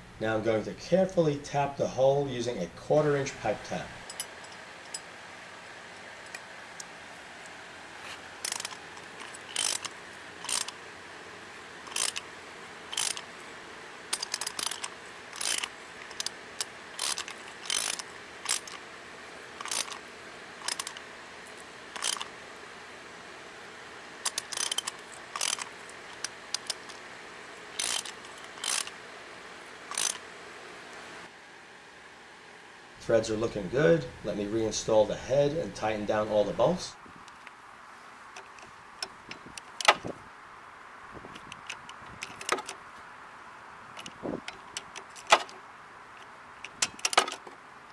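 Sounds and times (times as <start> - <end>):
socket ratchet clicking: 8.4 - 10.8, 11.9 - 12.3, 12.9 - 13.3, 14.1 - 18.8, 19.6 - 20.0, 20.6 - 21.1, 22.0 - 22.3, 24.2 - 27.0, 27.8 - 29.0, 29.9 - 30.2.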